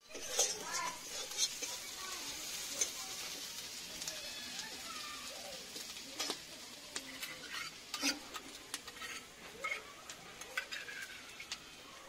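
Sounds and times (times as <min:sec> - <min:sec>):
metal spatula scraping a wok: 0:00.0 - 0:03.4, 0:06.2 - 0:11.7
low sizzle: 0:00.0 - 0:12.0.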